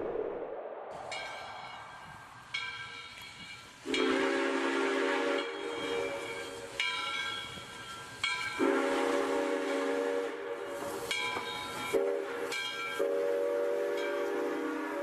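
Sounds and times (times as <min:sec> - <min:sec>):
steady steam hiss: 0:01.0 - 0:15.0
steam train whistle blasts: 0:03.8 - 0:06.8, 0:08.4 - 0:15.0
low train horn chord: 0:03.9 - 0:06.3, 0:08.6 - 0:10.9, 0:11.9 - 0:15.0.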